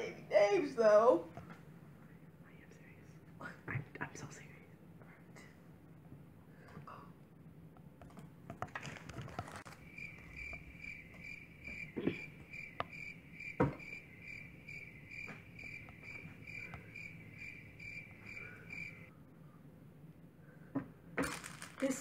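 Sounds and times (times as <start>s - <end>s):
rustling: 8.6s - 12.6s, 21.2s - 22.0s
cricket chirping: 8.8s - 19.1s
sharp knocks: 11.6s - 14.0s.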